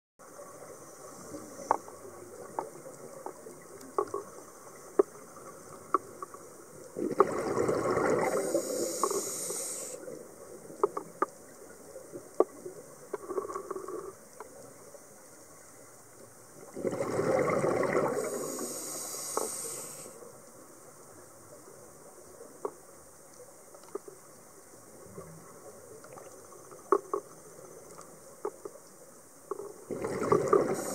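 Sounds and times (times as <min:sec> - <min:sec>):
exhaled bubbles rushing: 0:07.0 - 0:08.7, 0:16.7 - 0:18.6, 0:29.9 - 0:30.9.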